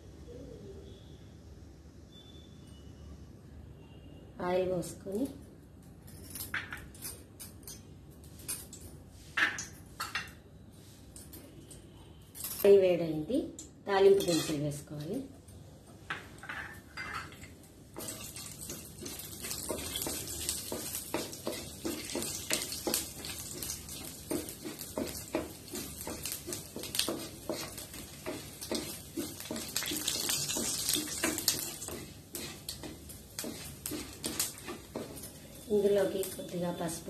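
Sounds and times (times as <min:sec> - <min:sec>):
wooden spatula stirring: 0:18.0 - 0:36.4
spices hissing and crackling in oil: 0:18.0 - 0:37.0.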